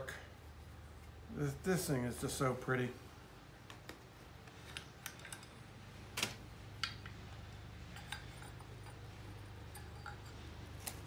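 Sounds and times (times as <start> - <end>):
light metallic clicks and clinks: 4.7 - 5.7, 7.9 - 11.0.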